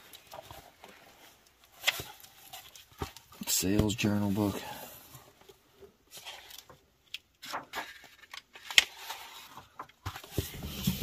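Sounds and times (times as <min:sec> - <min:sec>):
books knocking and rustling: 0:00.0 - 0:05.3, 0:07.4 - 0:11.0.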